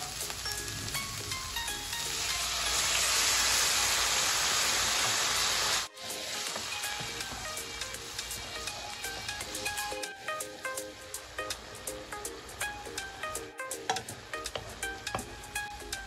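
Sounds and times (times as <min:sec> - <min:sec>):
frying sizzle: 0:00.0 - 0:16.0
soft background music: 0:00.0 - 0:16.0
water hissing in hot pan: 0:00.0 - 0:16.0.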